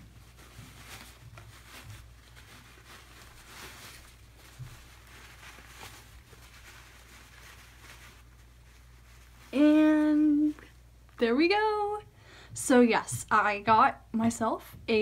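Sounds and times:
wrapping paper rustling: 0.0s - 11.2s.

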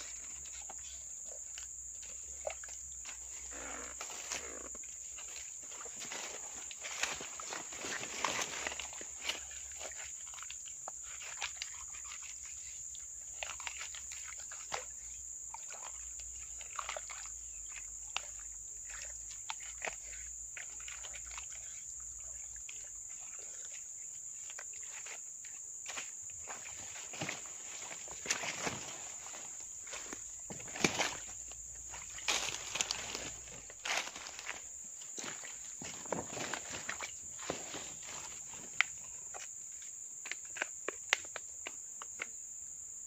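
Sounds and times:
leaf litter and soil rustling: 3.2s - 10.2s, 26.4s - 39.3s.

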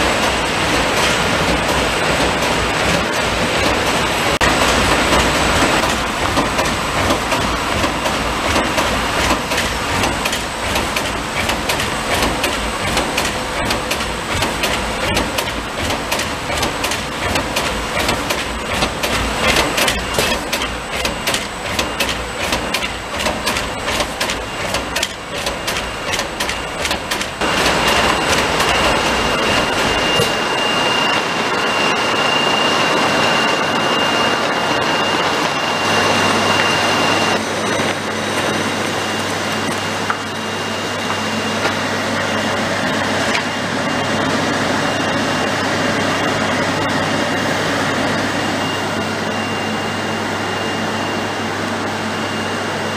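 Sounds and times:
packaging machine clattering: 5.0s - 30.4s.

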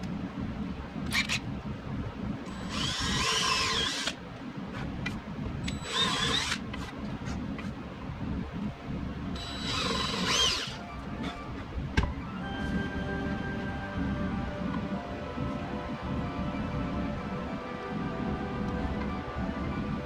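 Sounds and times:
cordless drill whine: 2.5s - 4.2s, 5.7s - 6.6s, 9.4s - 10.8s
background music: 9.4s - 20.0s.

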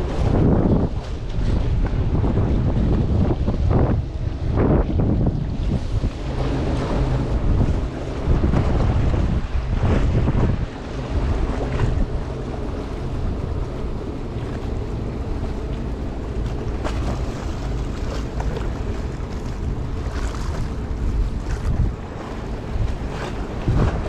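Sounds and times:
wind buffeting microphone: 0.0s - 24.0s
small waves washing against rocks: 5.6s - 24.0s.

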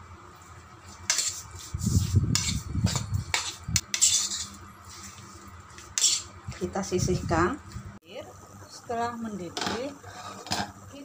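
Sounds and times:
spoon scraping against bowl: 1.0s - 5.2s, 5.8s - 6.4s.

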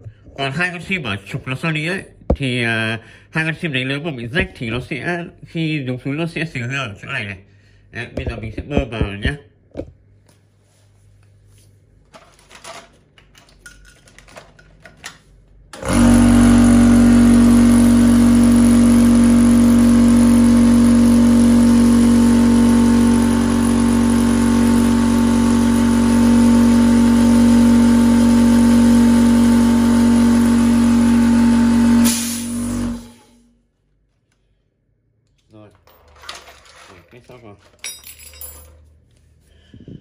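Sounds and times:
air compressor running: 15.7s - 33.6s
air hissing: 32.0s - 33.2s.

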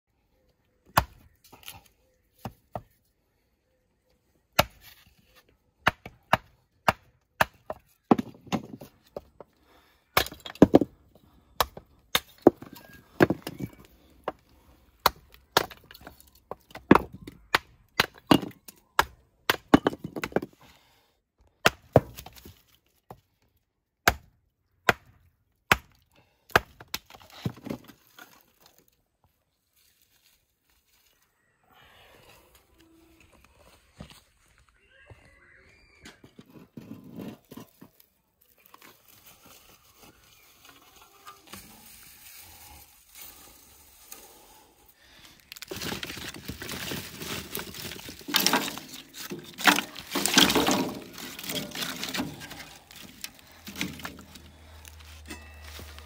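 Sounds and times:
hatchet chopping wood: 5.8s - 8.7s, 10.2s - 10.8s, 21.6s - 22.4s, 24.0s - 27.2s
wood splitting crackle: 10.1s - 20.5s, 45.0s - 56.0s.

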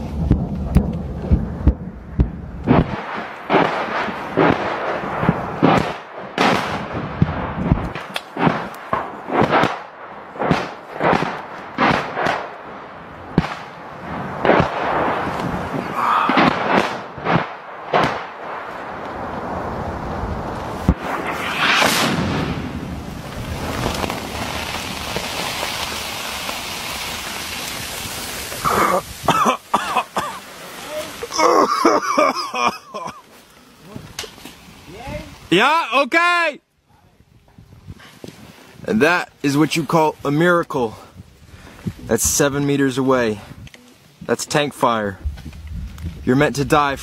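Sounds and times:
sharp bangs with rumbling tail: 0.0s - 12.5s, 13.3s - 18.7s, 20.7s - 24.7s
shell explosion blast: 0.0s - 29.9s
noisy hiss of falling debris: 13.3s - 35.6s.

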